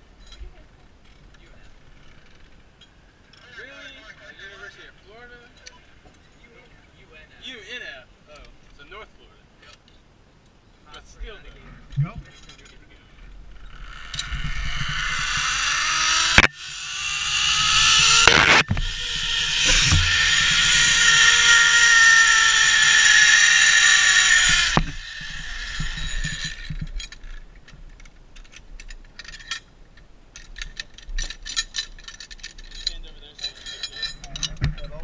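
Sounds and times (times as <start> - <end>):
carabiners clicking and jingling: 12.3 - 16.4, 18.1 - 35.0
zipline pulley whirring whine: 13.5 - 27.4.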